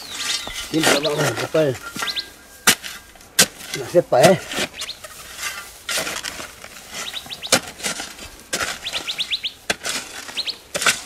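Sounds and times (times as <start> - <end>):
bird chirps: 0.0 - 3.2, 4.6 - 5.1, 7.0 - 7.6, 8.7 - 9.6, 10.3 - 10.6
hoe scraping dry soil: 0.0 - 11.0.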